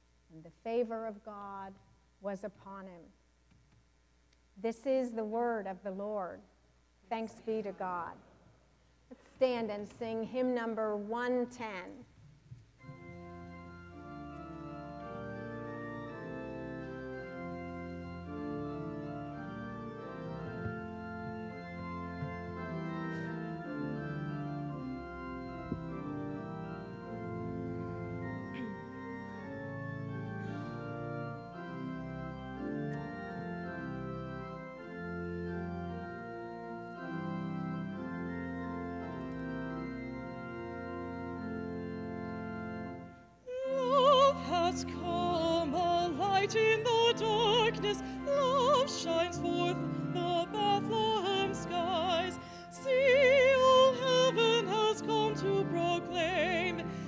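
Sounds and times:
church organ playing chords: 12.8s - 57.0s.

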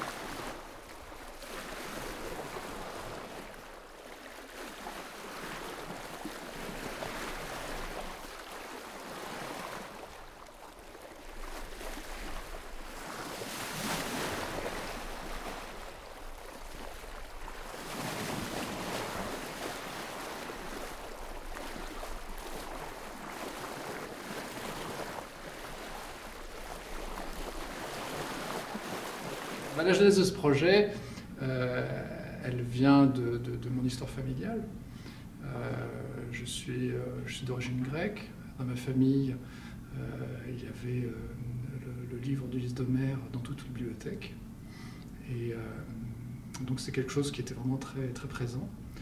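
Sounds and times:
sea waves washing in: 0.0s - 34.0s.

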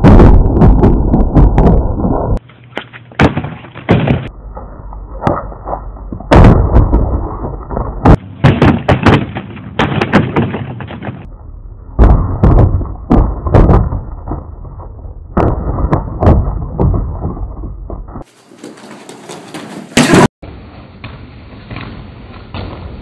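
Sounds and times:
kicks striking a punching bag: 0.0s - 1.8s, 3.2s - 4.3s, 6.3s - 11.2s, 12.0s - 14.5s
feet landing on concrete: 2.7s - 4.3s, 6.1s - 11.3s.

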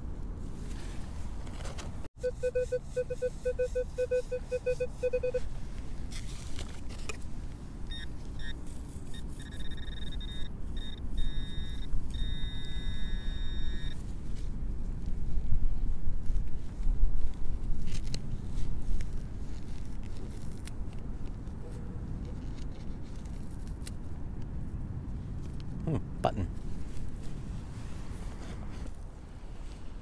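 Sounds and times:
metal detector beeping: 2.2s - 5.5s, 7.9s - 14.0s.

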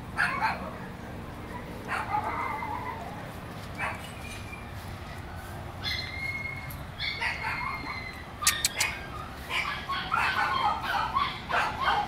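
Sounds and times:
sharp clicks: 8.4s - 8.9s.

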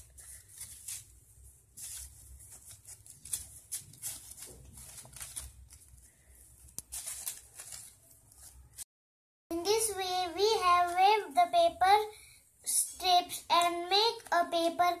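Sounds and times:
paper rustling and crinkling: 0.0s - 8.9s.

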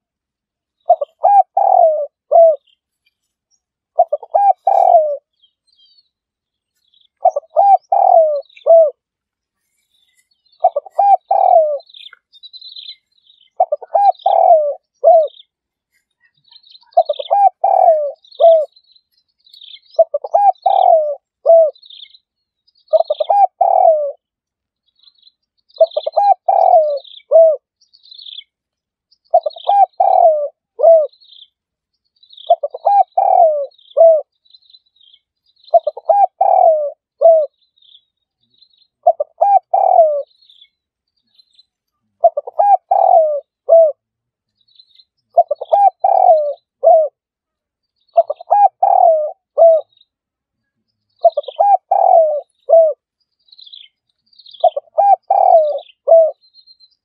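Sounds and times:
dove cooing: 0.8s - 2.7s, 4.0s - 5.3s, 7.2s - 9.0s, 10.6s - 12.2s, 13.4s - 15.5s, 16.6s - 18.8s, 19.9s - 21.8s, 22.9s - 24.2s, 25.8s - 27.7s, 29.3s - 31.2s, 32.4s - 34.3s, 35.7s - 37.6s, 39.0s - 40.3s, 42.2s - 44.0s, 45.3s - 47.2s, 48.2s - 49.9s, 51.2s - 53.0s, 54.6s - 56.4s.

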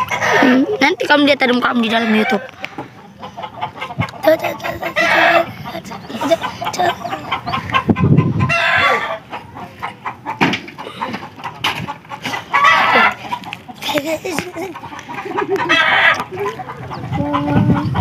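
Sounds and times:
chickens clucking: 0.0s - 18.0s
rooster crowing: 8.5s - 9.2s.

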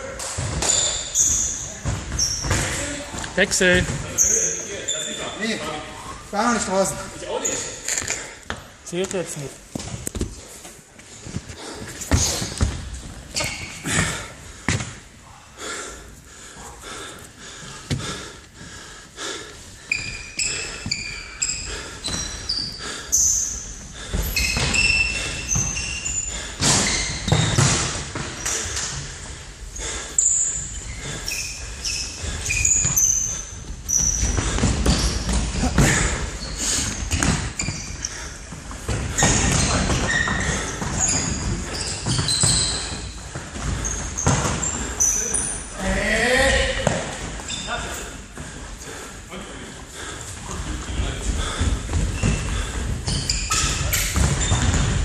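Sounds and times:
sports shoes squeaking on floor: 0.4s - 15.0s, 19.8s - 29.0s, 29.7s - 45.9s, 46.6s - 48.2s, 50.0s - 55.0s
ball thudding in echoing hall: 11.7s - 15.1s, 26.6s - 29.0s, 46.6s - 47.4s, 51.4s - 55.0s.

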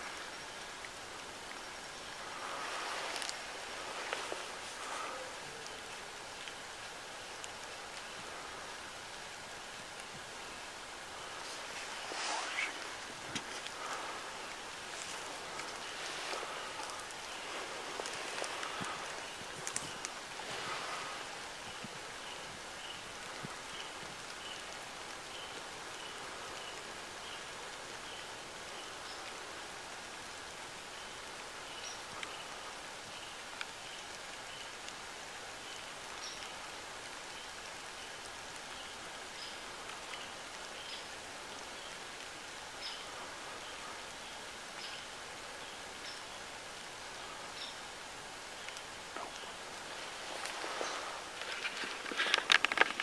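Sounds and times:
rain on leaves and grass: 0.0s - 53.0s.

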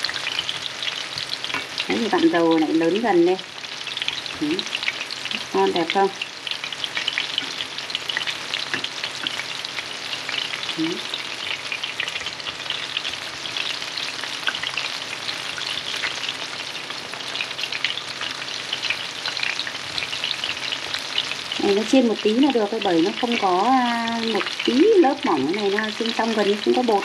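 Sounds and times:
shrimp deep-frying in oil: 0.0s - 27.0s.

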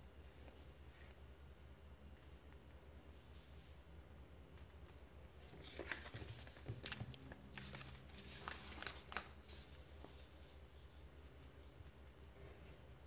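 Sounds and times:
paper rustling: 5.4s - 12.0s.

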